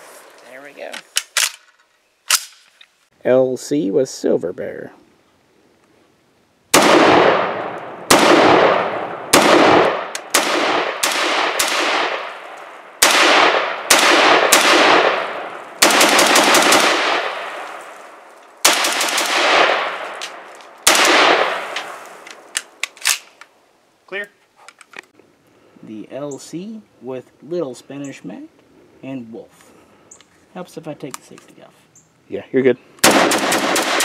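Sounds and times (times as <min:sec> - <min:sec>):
rifle shots with echo: 0:06.7 - 0:23.2, 0:33.0 - 0:34.0.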